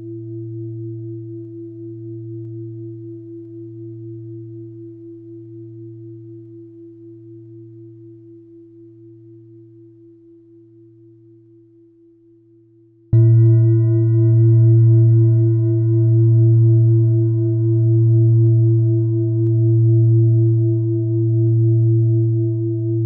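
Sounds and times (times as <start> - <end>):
deep ringing tone with wobble: 13.2 - 23.0.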